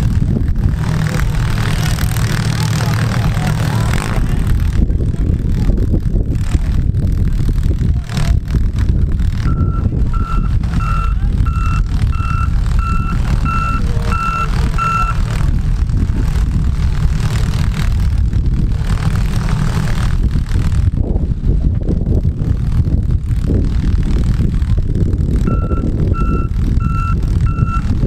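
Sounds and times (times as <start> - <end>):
low rumble of engines: 0.0 - 28.0
vehicle reversing alarm beeps: 9.5 - 15.2, 25.5 - 27.9.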